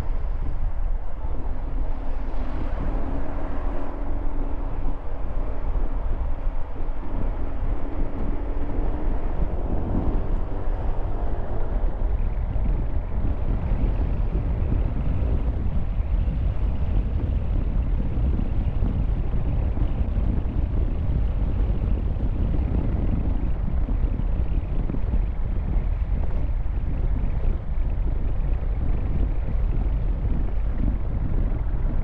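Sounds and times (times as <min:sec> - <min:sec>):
road traffic passing: 0:00.0 - 0:23.5
wind rumble on microphone: 0:00.0 - 0:32.0.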